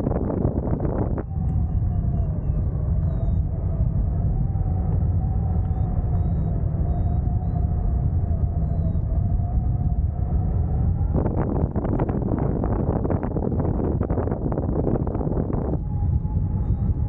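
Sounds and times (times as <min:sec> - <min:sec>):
crackling wind buffeting: 0:00.0 - 0:17.0
wind rumbling on microphone: 0:00.0 - 0:17.0
faint wavering whistle: 0:00.8 - 0:10.1, 0:15.3 - 0:17.0.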